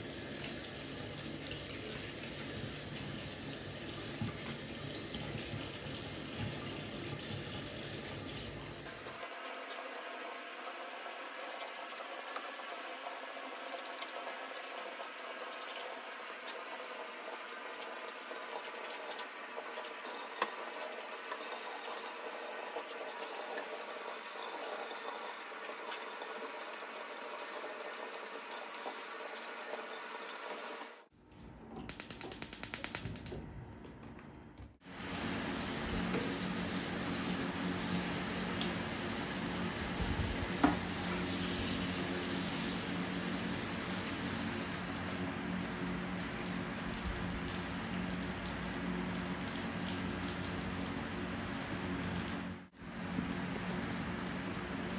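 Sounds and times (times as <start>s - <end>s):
water running from tap into sink: 0.0s - 31.0s, 34.8s - 54.9s.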